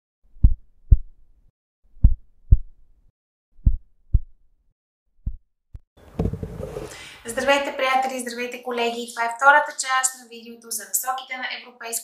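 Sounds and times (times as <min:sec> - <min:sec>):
heartbeat thumps: 0:00.4 - 0:01.1, 0:02.0 - 0:02.7, 0:03.6 - 0:04.3, 0:05.2 - 0:05.4.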